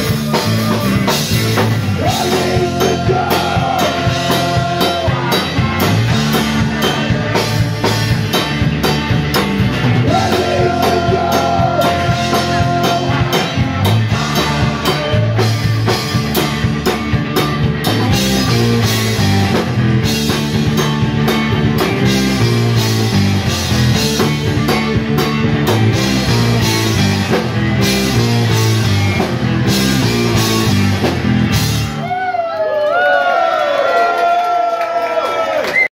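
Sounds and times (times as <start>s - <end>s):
drum kit beating: 0.0s - 32.4s
bass guitar line: 0.0s - 32.6s
man singing into a microphone: 2.0s - 5.5s, 10.0s - 13.5s.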